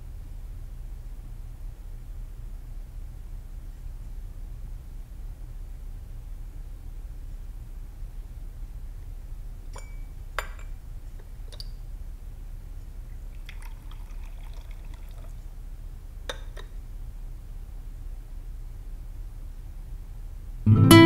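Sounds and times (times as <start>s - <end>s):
tea pouring into cup: 13.1s - 15.6s.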